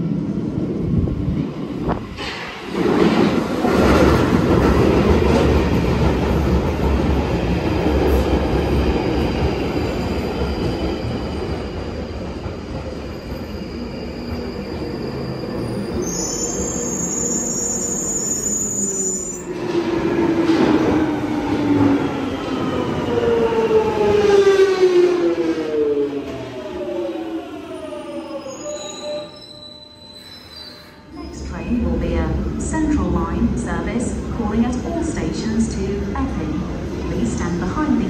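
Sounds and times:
train wheels rumbling on rail: 0.0 - 16.9
high squeal: 13.3 - 19.5, 27.9 - 31.5.

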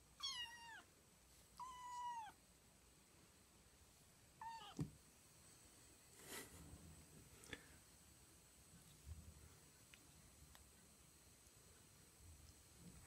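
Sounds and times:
kitten meowing: 0.2 - 0.9, 1.6 - 2.4, 4.4 - 4.8.

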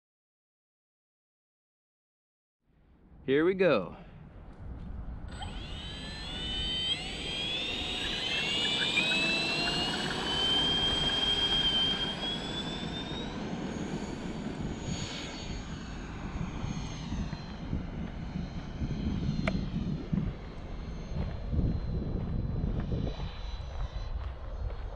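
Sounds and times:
electric ducted fan whine: 3.0 - 24.9
steady low noise: 15.5 - 24.9.

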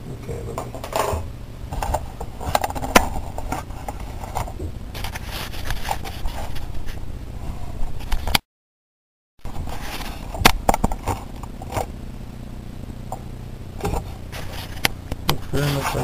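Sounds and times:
steady low rumble: 0.0 - 8.2, 9.4 - 16.0.

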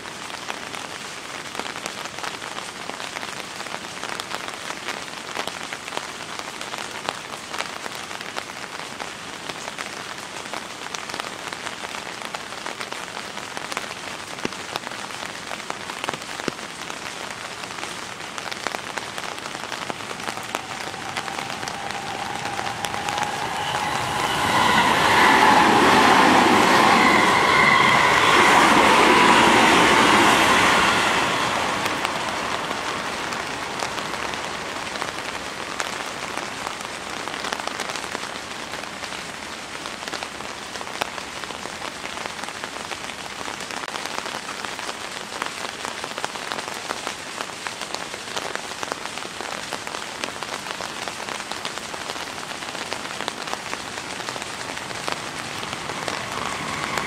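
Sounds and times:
steady rain falling: 0.0 - 57.0
electric train running past: 19.6 - 35.4, 54.1 - 57.0.

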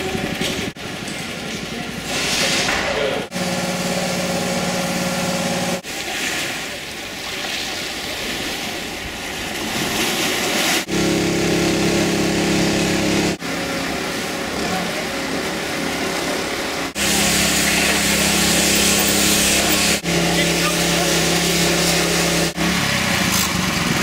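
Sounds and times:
wind: 0.0 - 24.0
steady motor hum: 3.2 - 5.9, 10.8 - 24.0
sea: 5.8 - 24.0.

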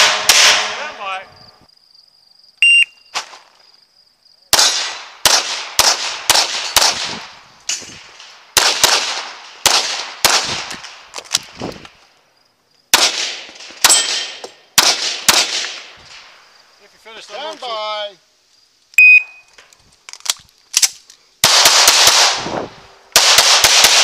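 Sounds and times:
pistol shots with echo: 0.0 - 1.0, 4.5 - 7.3, 7.9 - 11.0, 12.9 - 16.2, 21.4 - 24.0.

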